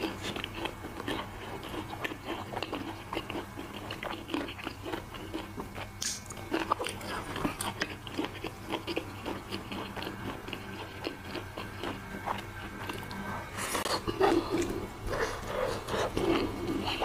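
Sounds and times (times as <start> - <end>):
wet chewing and mouth clicks: 0.0 - 17.0.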